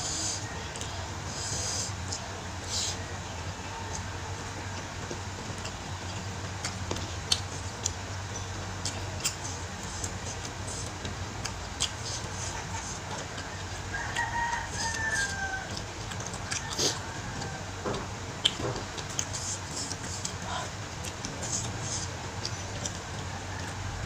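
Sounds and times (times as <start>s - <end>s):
steady low hum: 0.0s - 24.0s
rooster crowing: 2.8s - 4.8s, 13.4s - 15.8s, 16.4s - 18.0s, 23.2s - 24.0s
chewing and finger clicks: 5.5s - 17.6s, 18.4s - 23.8s.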